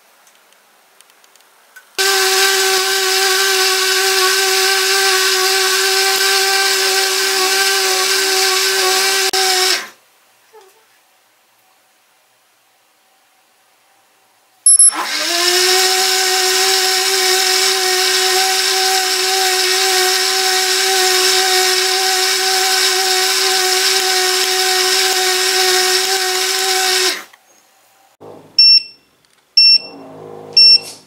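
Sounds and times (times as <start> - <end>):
blender motor whining: 2.0 - 10.0, 14.8 - 27.3
short buzzer beeps: 14.7 - 15.0, 28.6 - 31.0.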